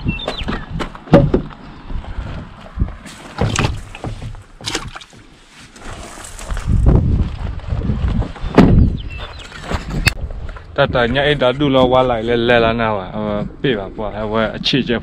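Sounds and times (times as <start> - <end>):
wind rumble on microphone: 0.0 - 4.2, 5.9 - 15.0
truck door knocks and clunks: 0.2 - 1.6, 3.4 - 5.0, 8.5 - 9.0.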